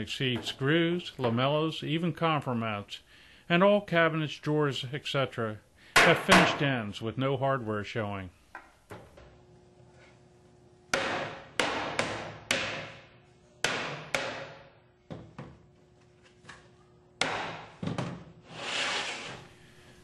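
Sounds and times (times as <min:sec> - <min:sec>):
short scraping rush: 0:18.5 - 0:19.5.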